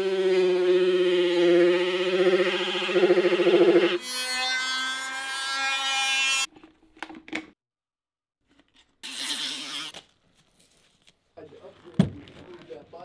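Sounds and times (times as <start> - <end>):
rotary grinding tool whine: 0.0 - 4.0.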